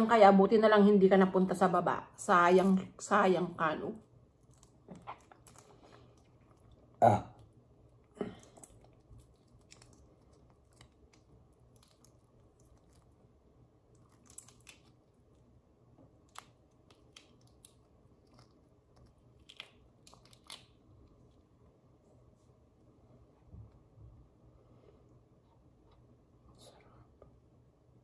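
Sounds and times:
low steady hum: 0.0 - 28.0
soft chewing: 4.0 - 27.5
shrimp shells crackling as peeled: 8.4 - 13.1, 13.9 - 15.3, 16.2 - 20.9.

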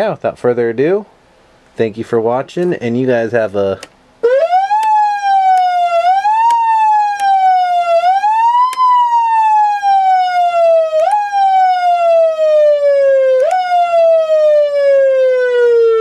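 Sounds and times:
electronic siren wailing: 4.2 - 16.0.

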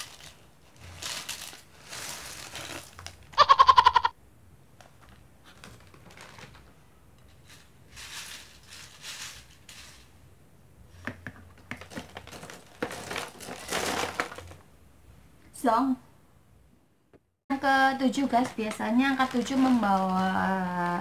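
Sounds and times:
plastic snack packet crinkling: 0.0 - 3.4, 5.0 - 6.7, 11.7 - 14.6, 18.0 - 21.0
crackers tipped into jar: 11.8 - 14.6.

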